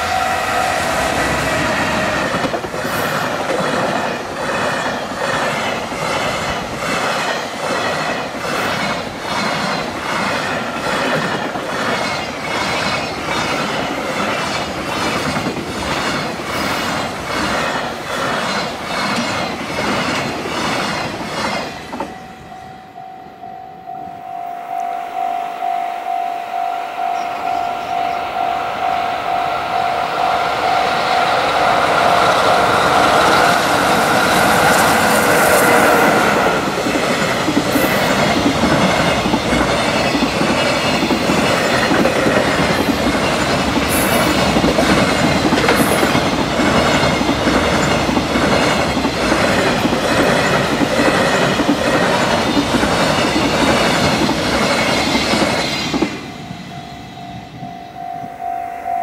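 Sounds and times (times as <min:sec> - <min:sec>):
crossing warning bell ringing: 0:00.0 - 0:03.6, 0:21.7 - 0:48.8, 0:52.2 - 0:59.0
freight train wheels clattering: 0:00.0 - 0:22.5, 0:30.1 - 0:56.7.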